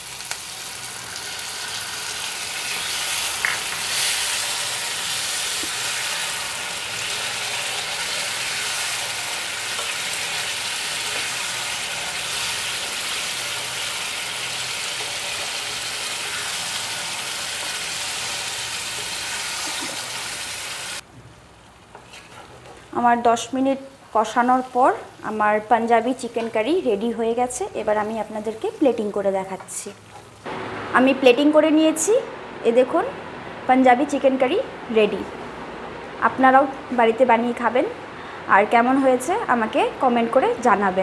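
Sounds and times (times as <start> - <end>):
curry sizzling in frying pan: 0.0 - 21.0.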